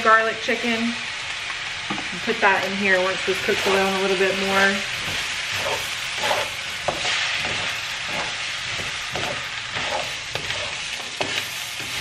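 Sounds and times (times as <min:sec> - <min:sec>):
food sizzling in a wok: 0:00.0 - 0:12.0
wooden spatula scraping wok: 0:02.5 - 0:12.0.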